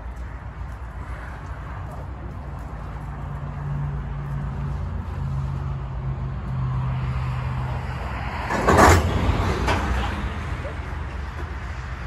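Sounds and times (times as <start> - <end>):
railcars rolling slowly: 0.0 - 12.0
railcar couplers clanking: 8.4 - 12.0.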